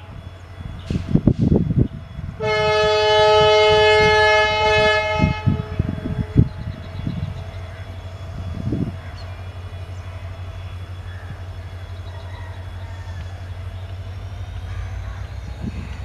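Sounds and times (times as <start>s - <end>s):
train rumbling: 0.0s - 16.0s
locomotive horn blast: 2.3s - 7.0s.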